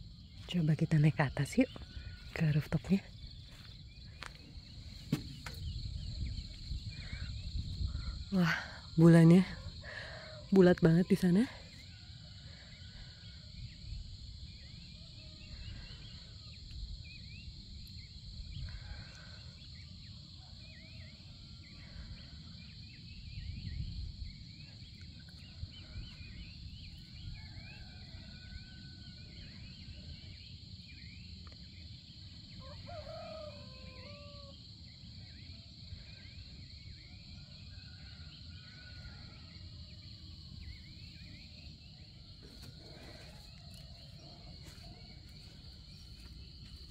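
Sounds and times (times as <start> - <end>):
distant rooster crowing: 27.2 - 29.4, 32.6 - 34.6
high buzz of insects: 38.0 - 46.9.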